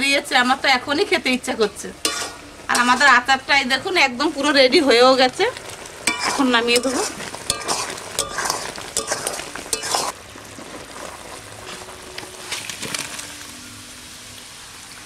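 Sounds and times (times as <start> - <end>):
pickle sizzling: 0.0 - 15.0
metal spatula scraping pan: 2.0 - 3.2, 6.0 - 10.7.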